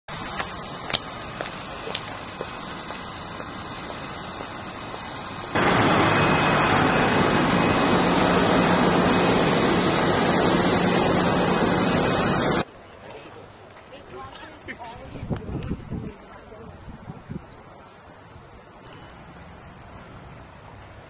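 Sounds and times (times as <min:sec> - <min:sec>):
loud even hiss: 0:00.2 - 0:12.6
steady rushing noise: 0:02.6 - 0:12.6.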